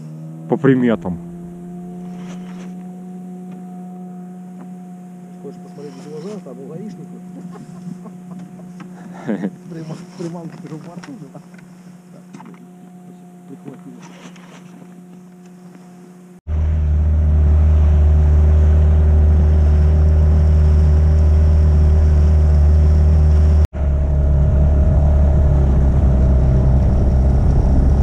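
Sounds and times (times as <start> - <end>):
outboard motor droning: 0.0 - 28.0
faint steady hum: 1.0 - 16.4.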